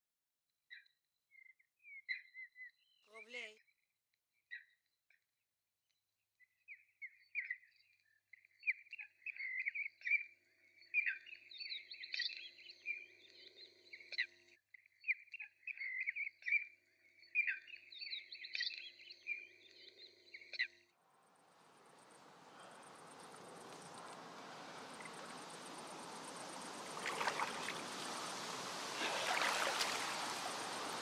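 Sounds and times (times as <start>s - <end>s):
birds chirping and twittering: 0.7s - 3.5s, 6.6s - 31.0s
rising hiss: 21.4s - 31.0s.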